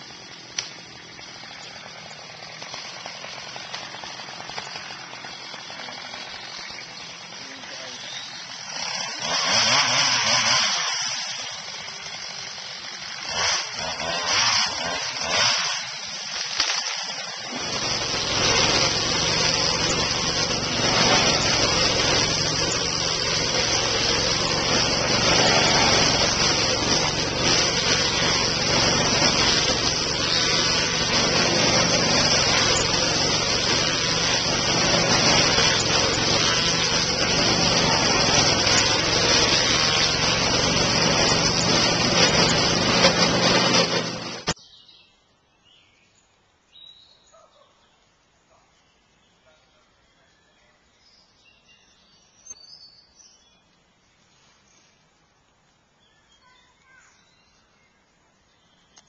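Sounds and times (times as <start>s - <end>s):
stump grinder engine drone: 0.0s - 44.6s
wheel grinding into stump: 13.3s - 44.6s.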